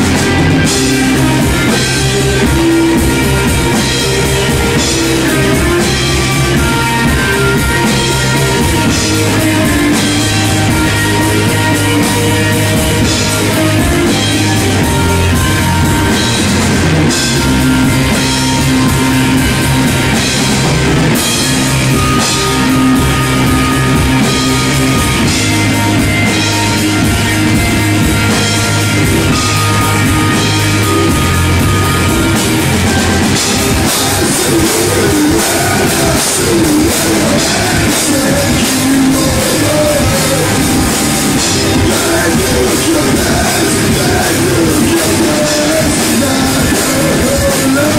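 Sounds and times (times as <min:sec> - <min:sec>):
bass guitar: 0:00.0 - 0:47.9
drum kit beat: 0:00.0 - 0:47.9
electric guitars: 0:00.0 - 0:47.9.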